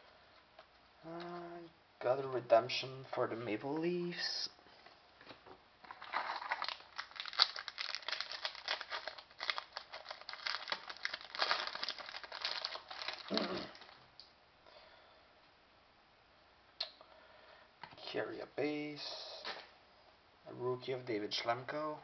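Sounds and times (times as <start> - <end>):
cards rustling: 5.9 - 14.0
foil wrapper crinkling and tearing: 5.9 - 14.0.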